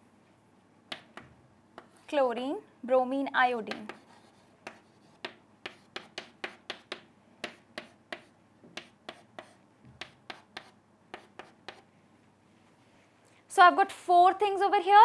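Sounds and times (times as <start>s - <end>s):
chalk tapping on chalkboard: 0.9s - 2.1s, 3.7s - 11.9s.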